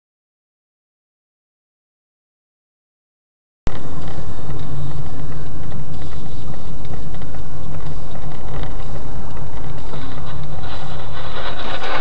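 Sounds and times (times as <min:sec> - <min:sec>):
car engine and road rumble: 0:03.7 - 0:12.0.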